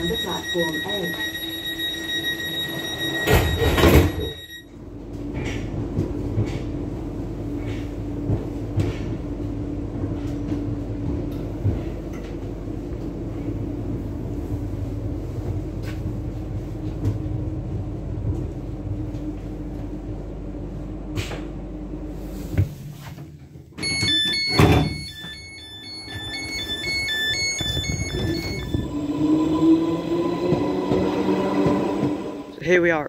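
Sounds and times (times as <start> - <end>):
rapid electronic beeps: 0.0 - 4.6, 23.9 - 28.8
electric train humming: 0.0 - 22.5, 23.8 - 33.0
sliding door opening clunk: 2.6 - 4.4, 23.8 - 28.9.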